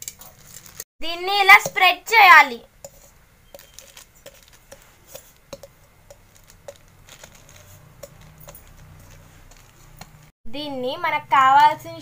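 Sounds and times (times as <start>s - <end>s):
metal tumbler tapping on nuts: 2.8s - 10.2s.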